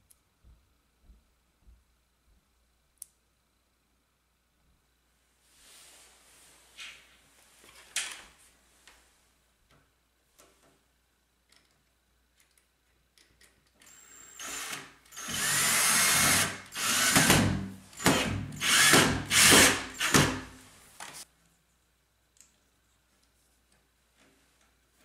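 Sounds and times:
power drill driving a screw: 13.9s - 20.4s.

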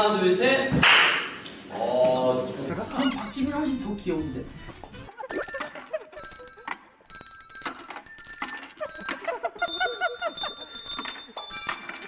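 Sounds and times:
handbells ringing melody: 5.3s - 12.0s.

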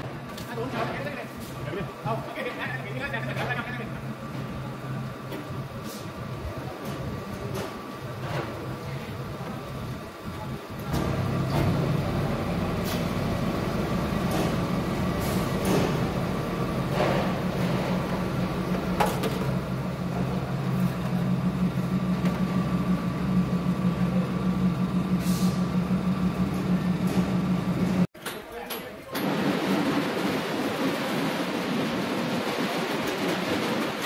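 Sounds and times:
factory machinery humming: 0.0s - 28.1s, 29.1s - 34.0s
machinery clanks: 10.8s - 34.0s
machinery hisses: 25.1s - 25.9s.

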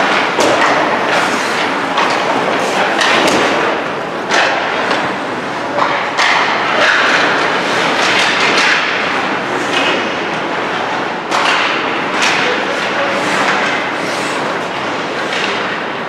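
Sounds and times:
pucks and sticks knocking: 0.0s - 10.4s, 11.3s - 16.0s.

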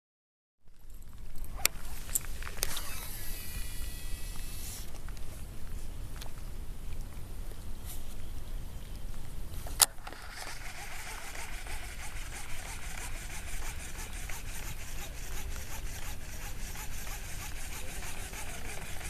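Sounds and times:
fishing reel ticking whirr: 2.6s - 4.9s, 10.2s - 19.0s.

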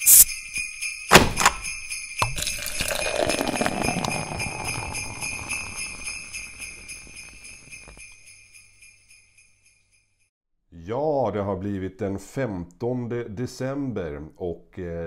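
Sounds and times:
sleigh bells shaken: 0.0s - 10.2s.

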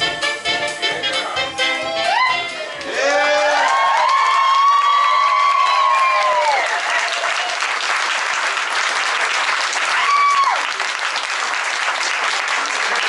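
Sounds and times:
person whooping: 1.9s - 7.6s, 9.9s - 10.6s
audience applauding: 2.1s - 13.0s.

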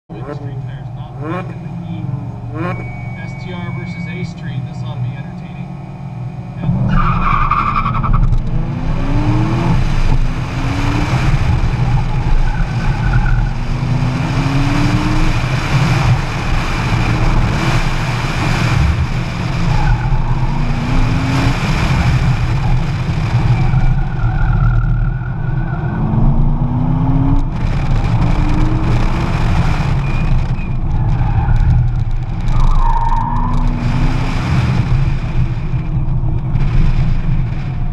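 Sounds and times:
tire squeals: 0.2s - 5.0s, 5.6s - 9.4s, 10.6s - 16.2s, 19.4s - 26.4s, 29.6s - 37.8s
car engine revving hard: 0.2s - 37.9s.

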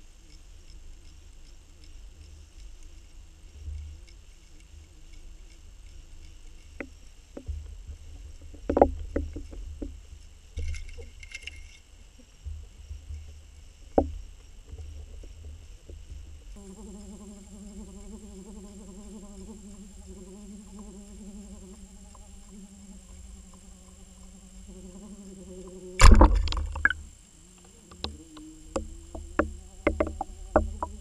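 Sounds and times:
faint high whine: 0.0s - 31.0s
patter of ticks: 0.0s - 31.0s
underwater rumble of moving water: 2.0s - 11.2s, 11.8s - 27.3s, 27.9s - 31.0s
sharp knocks: 28.8s - 31.0s.

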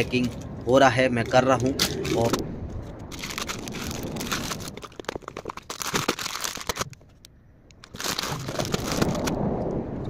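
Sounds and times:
plastic bags crinkling: 3.1s - 7.2s, 7.8s - 9.4s.

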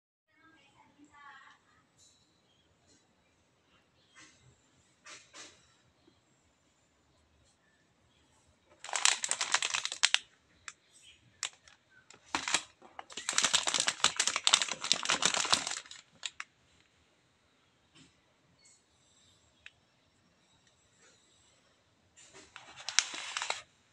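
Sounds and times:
plastic wrappers crinkling: 8.7s - 10.8s, 11.4s - 16.5s, 22.3s - 23.7s.

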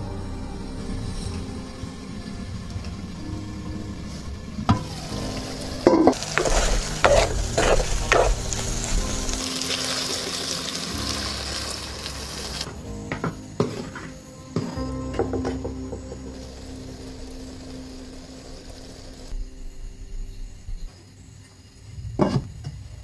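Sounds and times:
food sizzling in a pan: 4.1s - 12.8s.

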